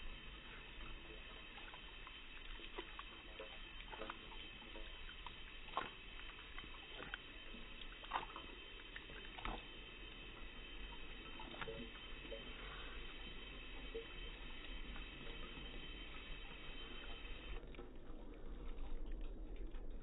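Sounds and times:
dog lapping water: 0:00.0 - 0:09.8
water trickling: 0:00.0 - 0:20.0.

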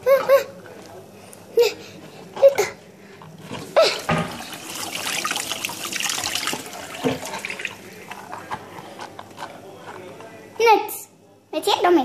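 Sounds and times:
faucet water splashing into sink: 0:04.1 - 0:07.8.

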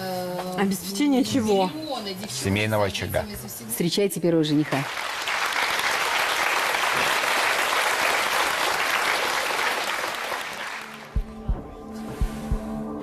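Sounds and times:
audience applauding: 0:04.6 - 0:11.3
music with low beat: 0:10.9 - 0:13.0.

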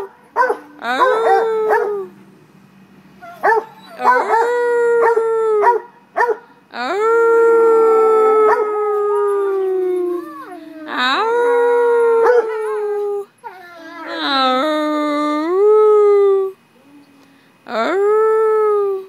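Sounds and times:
dogs howling: 0:00.0 - 0:02.2, 0:03.2 - 0:06.4, 0:07.1 - 0:14.6.

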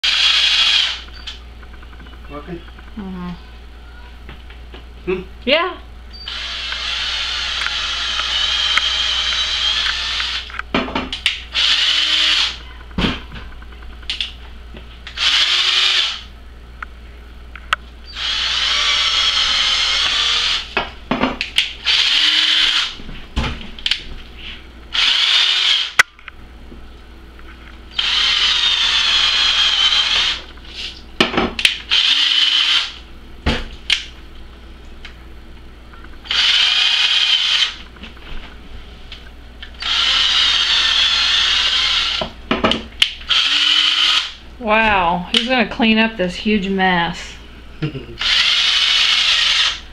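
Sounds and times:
cordless drill motor whirring: 0:00.0 - 0:01.1, 0:06.2 - 0:10.6, 0:11.5 - 0:12.6, 0:15.1 - 0:16.3, 0:18.1 - 0:20.8, 0:21.6 - 0:23.0, 0:24.9 - 0:26.0, 0:27.9 - 0:30.5, 0:31.6 - 0:33.0, 0:36.2 - 0:37.8, 0:39.8 - 0:42.3, 0:43.3 - 0:44.4, 0:48.2 - 0:49.8.

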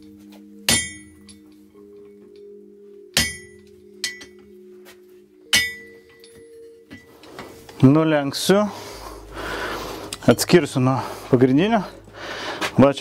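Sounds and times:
hammer clanging on hot iron: 0:00.7 - 0:01.4, 0:03.2 - 0:04.4, 0:05.5 - 0:07.1.

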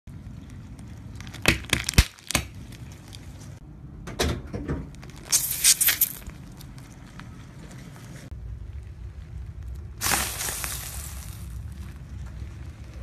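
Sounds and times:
plastic sachets popping: 0:01.1 - 0:03.2, 0:05.0 - 0:06.4
tyre crunching object: 0:05.0 - 0:06.8, 0:10.0 - 0:12.1
liquid spraying hiss: 0:05.3 - 0:06.2, 0:10.0 - 0:11.6.

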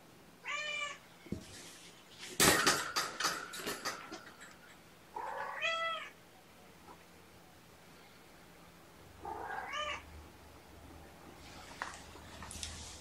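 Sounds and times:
loud rustling and clicking: 0:01.4 - 0:04.8
kitten meowing: 0:09.3 - 0:10.0.

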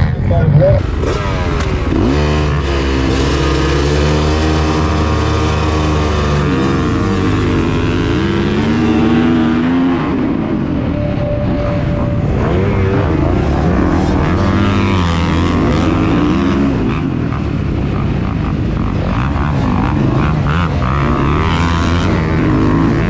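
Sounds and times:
dirt bike engine revving: 0:00.0 - 0:23.0
wind rush: 0:09.2 - 0:19.2.

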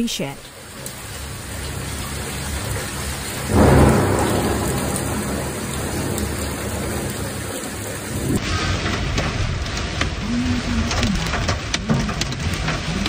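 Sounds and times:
heavy rain hissing: 0:00.0 - 0:13.0
low rumble: 0:01.2 - 0:11.6.

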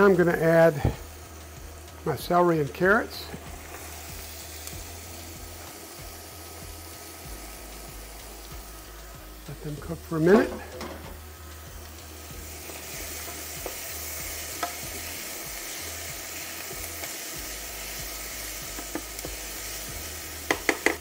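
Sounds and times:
vegetables sizzling in oil: 0:00.0 - 0:21.0
spoon knocking against pan: 0:20.5 - 0:21.0.

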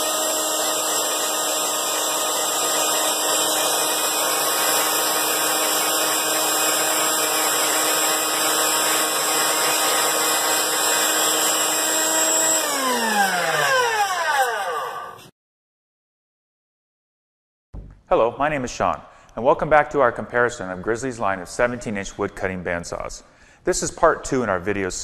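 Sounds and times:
band saw motor whine: 0:00.0 - 0:15.3.

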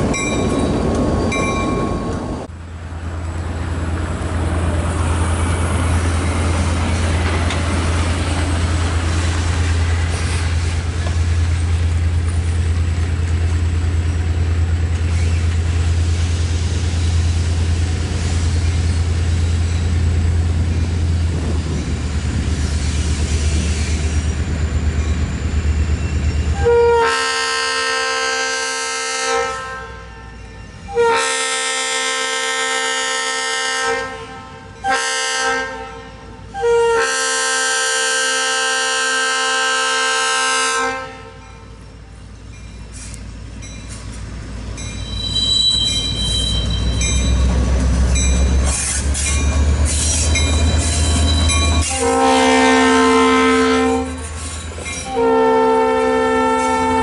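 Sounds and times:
wheels squealing: 0:14.0 - 0:15.9, 0:17.9 - 0:26.6, 0:42.4 - 0:52.0
locomotive air horn blasts: 0:26.6 - 0:41.4, 0:51.2 - 0:54.4, 0:55.0 - 0:57.0.

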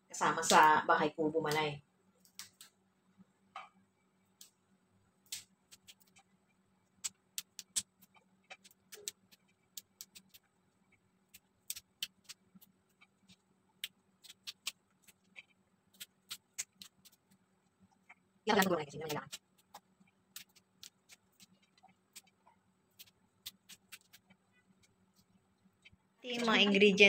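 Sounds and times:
string beans snapping: 0:05.2 - 0:06.2, 0:07.0 - 0:10.4, 0:11.3 - 0:13.1, 0:13.8 - 0:17.3.

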